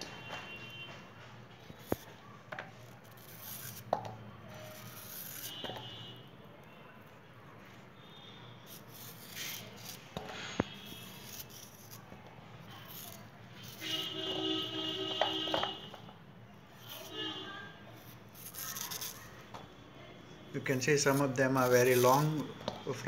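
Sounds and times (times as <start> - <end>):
knife scraping through yam: 2.8 - 3.9, 4.5 - 6.1, 8.6 - 15.8, 16.7 - 19.5, 20.6 - 22.6.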